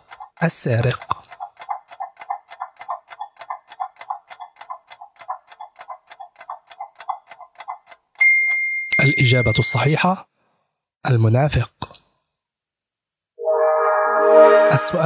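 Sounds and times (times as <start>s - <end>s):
clock ticking: 0.0s - 9.8s.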